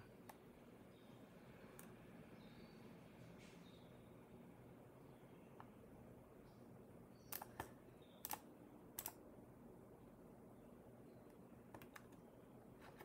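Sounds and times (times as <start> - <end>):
computer mouse clicks: 0.2 - 0.4, 1.7 - 2.0, 7.3 - 9.2, 11.3 - 12.2.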